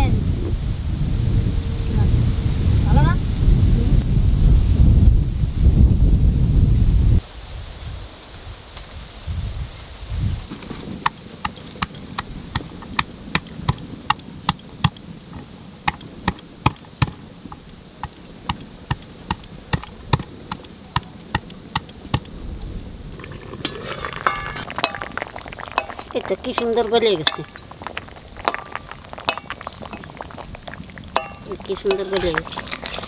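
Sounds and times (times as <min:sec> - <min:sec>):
pestle pounding on wooden board: 0:11.4 - 0:22.3
water boiling in a wok: 0:23.0 - 0:33.0.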